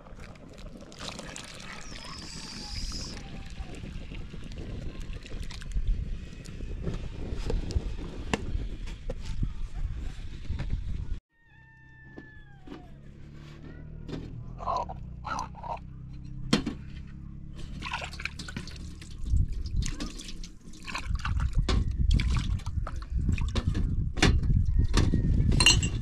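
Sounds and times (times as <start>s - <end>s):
water splashing and dripping: 0.0s - 5.8s, 17.8s - 23.6s.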